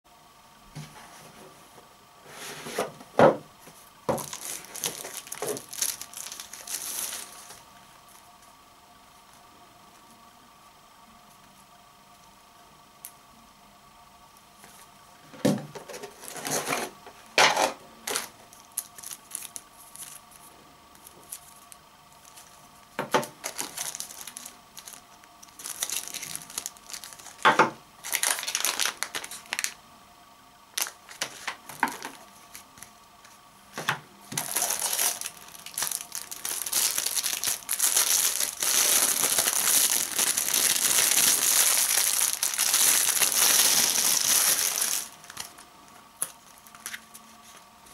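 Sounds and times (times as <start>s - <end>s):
packaging knocks and rustles: 4.1s - 7.6s, 22.3s - 29.8s, 30.8s - 32.6s, 33.8s - 45.6s
plastic bag crinkling: 4.1s - 7.7s, 15.9s - 16.9s, 18.0s - 22.6s, 23.2s - 29.8s, 30.7s - 32.9s, 34.2s - 45.6s.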